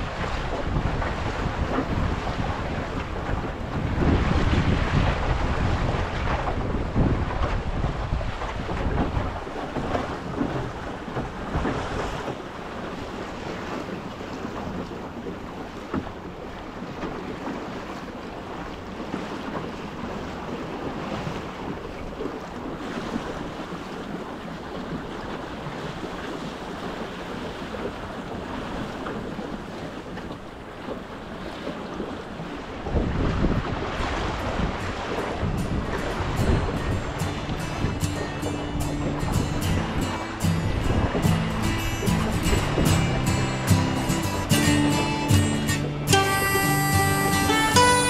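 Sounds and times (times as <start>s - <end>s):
choppy water slapping hull: 0.0s - 48.0s
wind buffeting microphone: 0.0s - 48.0s.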